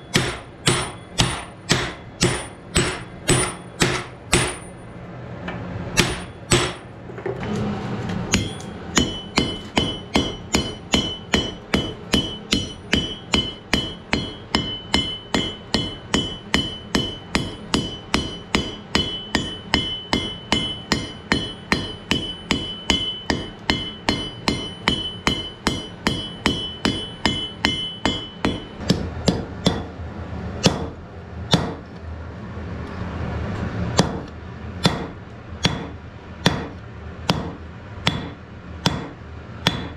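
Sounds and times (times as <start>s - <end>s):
hammer blows on anvil: 0.0s - 4.9s, 6.0s - 6.9s, 8.3s - 30.0s, 34.0s - 39.9s
anvil ringing: 0.0s - 5.0s, 6.0s - 6.9s, 8.3s - 29.9s, 37.3s - 39.9s.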